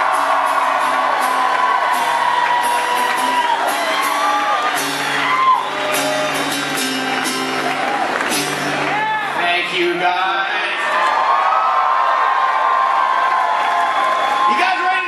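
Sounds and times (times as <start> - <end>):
live band music: 2.8 - 10.2.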